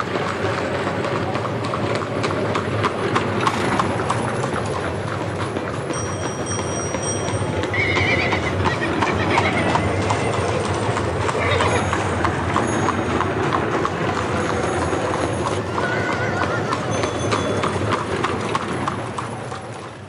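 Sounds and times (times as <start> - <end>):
horses hooves clip-clopping: 0.0 - 20.0
horse whinnying: 7.7 - 10.5, 11.2 - 12.0, 15.6 - 17.2.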